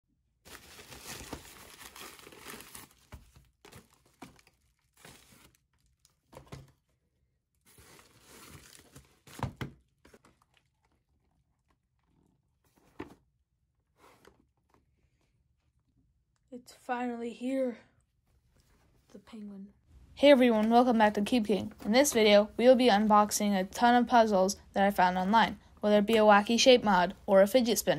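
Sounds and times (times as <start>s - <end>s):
plastic bag crinkling and tearing: 0.5s - 6.3s, 7.7s - 11.8s.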